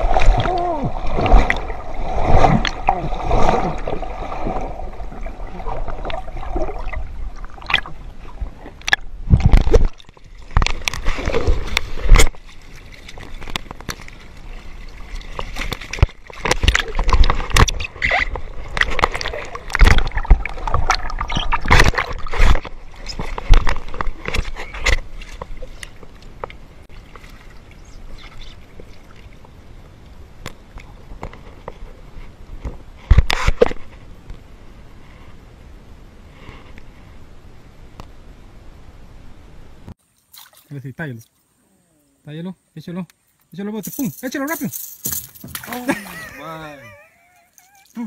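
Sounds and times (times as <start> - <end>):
water gurgling and splashing: 0.0 - 26.1.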